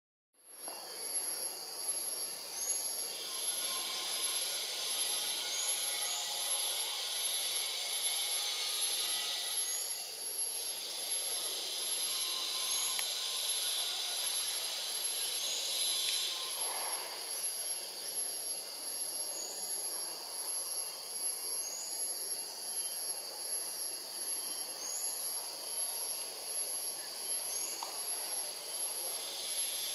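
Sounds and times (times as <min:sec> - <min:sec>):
insect chorus: 0:00.4 - 0:29.9
thin constant whine: 0:00.4 - 0:29.9.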